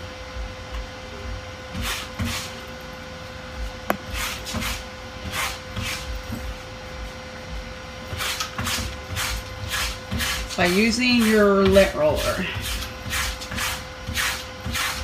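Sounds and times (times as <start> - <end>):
lint roller rasping on fabric: 4.1 - 6.1, 8.1 - 15.0.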